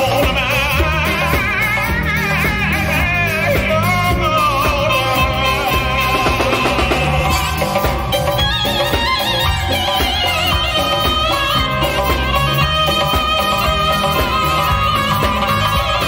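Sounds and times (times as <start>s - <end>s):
drum kit: 0.0s - 16.0s
frame drum beat: 0.0s - 16.0s
keyboard: 0.0s - 16.0s.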